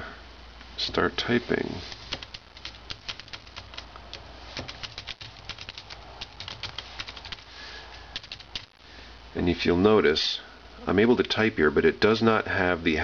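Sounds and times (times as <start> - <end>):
fingers typing on keyboard: 1.9 - 7.5, 8.1 - 8.8.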